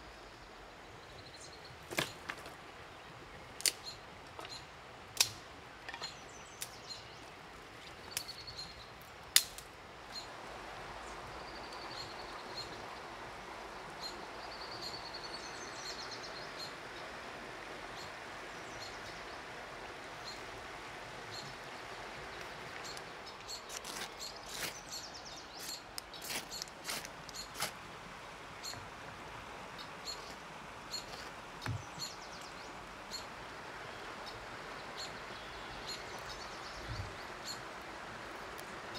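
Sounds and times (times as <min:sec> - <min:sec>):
outdoor hiss: 0:00.0 - 0:38.9
dry sticks snapping: 0:03.6 - 0:03.8, 0:05.2 - 0:06.0, 0:09.3 - 0:09.7
birds chirping: 0:21.3 - 0:27.6, 0:29.8 - 0:33.3, 0:33.9 - 0:37.7.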